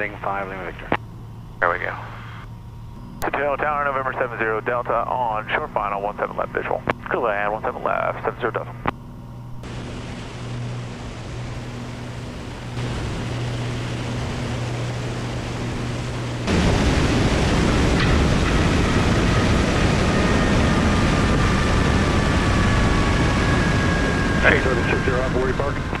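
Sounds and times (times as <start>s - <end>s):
aircraft engine humming: 0.0s - 26.0s
rushing wind: 9.6s - 26.0s.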